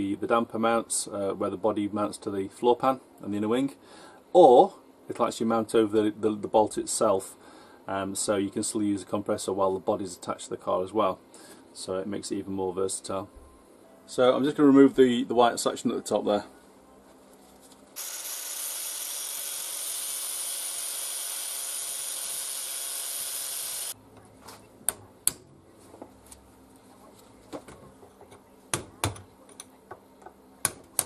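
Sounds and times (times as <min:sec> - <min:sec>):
angle grinder cutting steel: 0:18.0 - 0:24.0.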